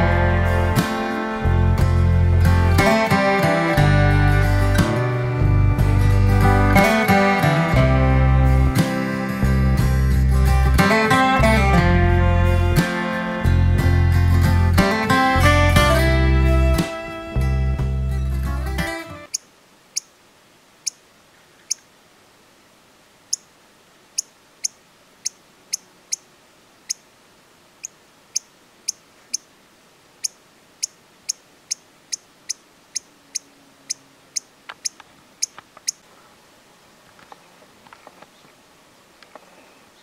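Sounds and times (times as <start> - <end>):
chipmunk chip calls: 19.1 - 20.2, 20.8 - 21.9, 23.2 - 23.5, 24.1 - 27.1, 27.8 - 29.6, 30.2 - 36.0
faint rustling: 34.6 - 40.0.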